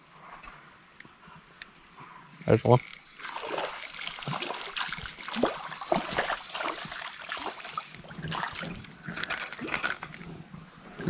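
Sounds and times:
stream water splashing: 2.8s - 10.2s.

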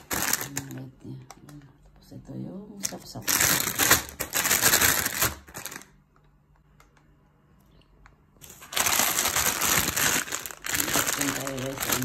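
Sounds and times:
plastic bags crinkling: 0.0s - 1.0s, 2.8s - 6.0s, 8.4s - 12.0s.

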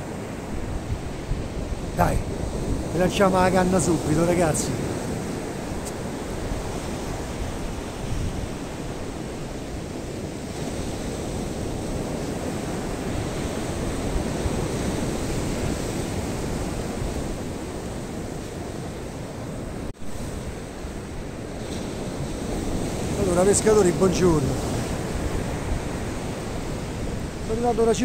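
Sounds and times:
surf breaking on beach: 0.0s - 17.8s, 20.0s - 28.0s
wind rumbling on microphone: 0.0s - 28.0s.

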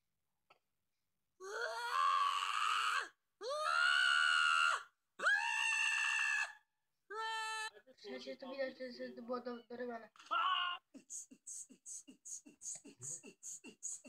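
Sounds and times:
cat yowling: 10.3s - 10.8s.

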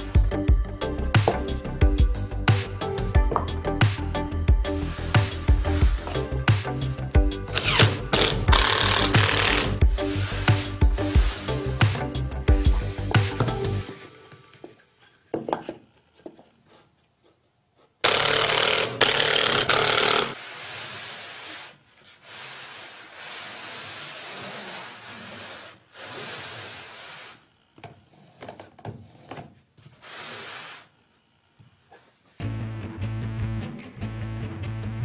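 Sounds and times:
wood scraping against wood: 7.6s - 12.0s, 19.9s - 30.9s.

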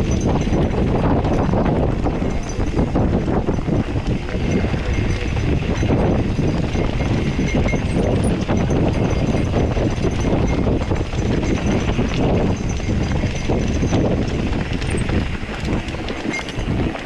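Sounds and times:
bike clattering: 0.0s - 17.0s
heavy rough rumble: 0.0s - 17.0s
tyres over loose stones: 0.0s - 17.0s.

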